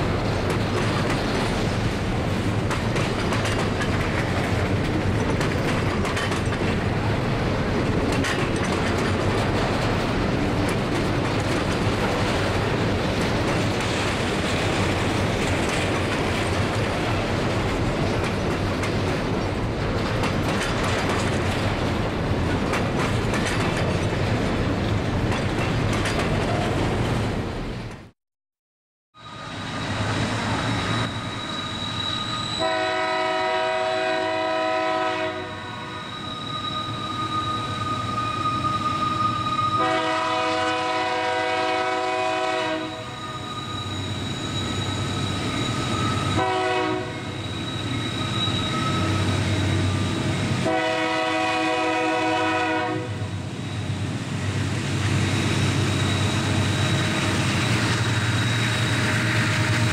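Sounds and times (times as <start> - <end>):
train rumbling: 0.0 - 28.1, 29.2 - 59.9
locomotive air horn blasts: 32.6 - 36.1, 39.8 - 43.2, 46.3 - 47.3, 50.6 - 53.2.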